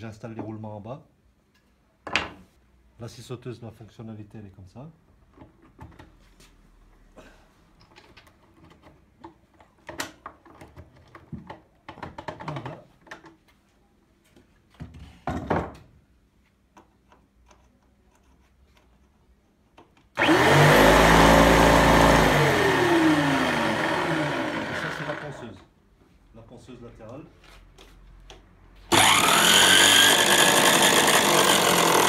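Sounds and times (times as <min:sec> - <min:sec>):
jigsaw running: 0:20.2 - 0:25.4, 0:28.9 - 0:32.0.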